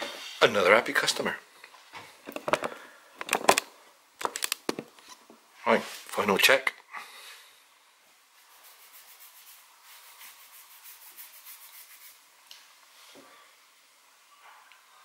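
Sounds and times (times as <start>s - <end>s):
fast scratchy rubbing: 8.4s - 12.2s.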